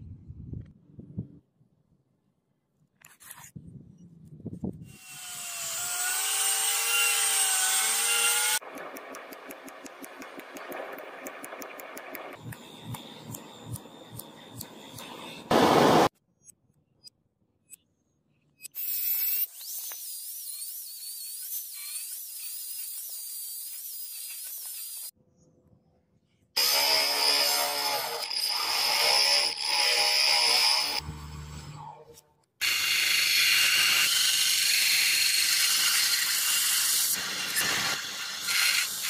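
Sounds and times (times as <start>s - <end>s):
power grinder grinding metal: 4.9s - 8.6s, 26.6s - 39.0s.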